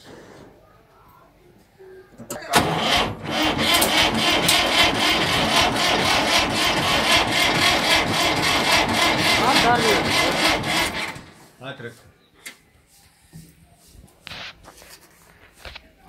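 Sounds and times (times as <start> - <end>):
tractor diesel engine running: 2.3 - 11.4.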